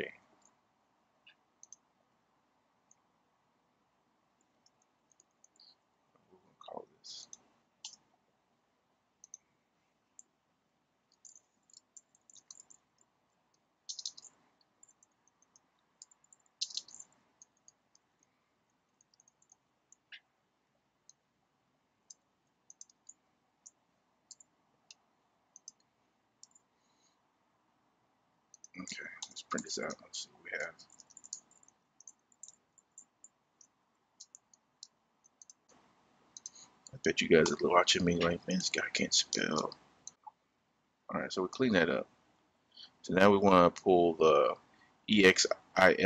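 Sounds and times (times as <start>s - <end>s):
keyboard typing: 11.1s - 13.1s, 13.9s - 18.3s, 19.0s - 20.2s, 22.1s - 26.7s, 28.5s - 35.8s, 36.4s - 40.2s.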